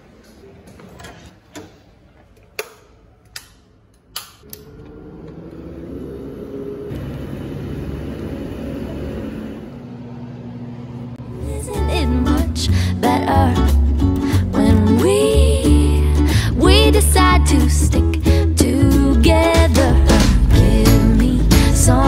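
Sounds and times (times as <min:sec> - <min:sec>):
low rumbling hum: 0:04.4 - 0:16.7, 0:19.9 - 0:22.0.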